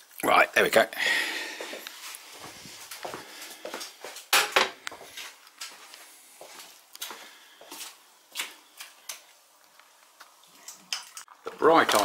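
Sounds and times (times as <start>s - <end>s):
kitchen items knocking and clinking: 4.3s - 4.8s.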